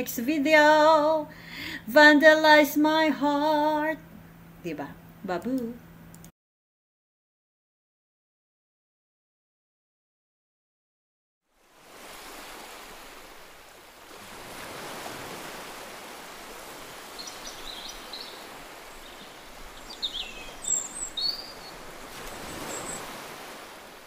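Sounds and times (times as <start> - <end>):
surf washing onto beach: 11.6 - 24.0
short bird calls: 17.1 - 23.3.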